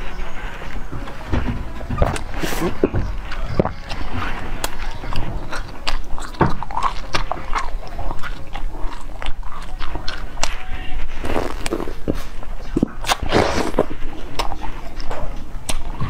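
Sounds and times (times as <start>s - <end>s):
chewing firm jelly clicks: 4.6s - 10.6s, 12.8s - 16.0s.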